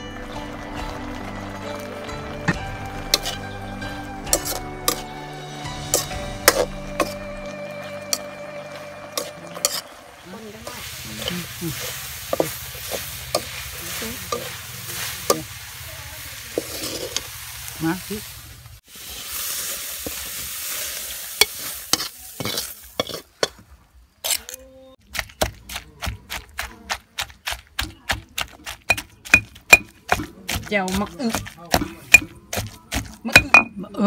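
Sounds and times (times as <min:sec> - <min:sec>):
food sizzling in a wok: 0:00.0 - 0:24.4
metal spatula scraping: 0:03.1 - 0:03.4, 0:04.3 - 0:07.2, 0:09.1 - 0:15.6, 0:16.2 - 0:17.4, 0:19.1 - 0:24.6
pestle pounding in stone mortar: 0:25.0 - 0:33.8.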